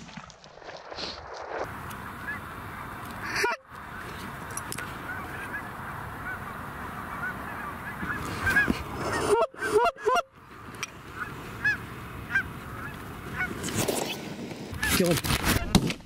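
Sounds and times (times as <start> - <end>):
geese honking: 1.7 - 10.3, 11.1 - 13.6.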